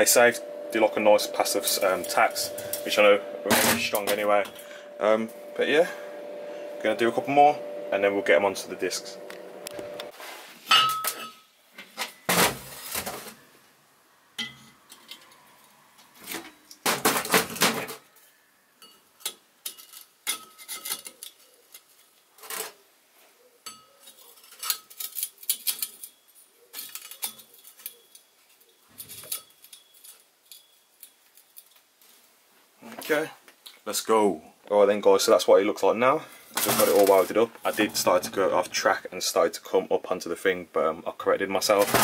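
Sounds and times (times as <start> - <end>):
metallic clinks and knocks: 23.7 - 31.9.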